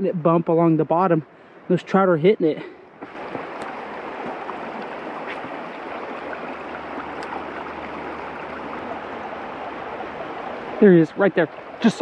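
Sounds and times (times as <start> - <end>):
stream rushing over rocks: 3.0 - 12.0.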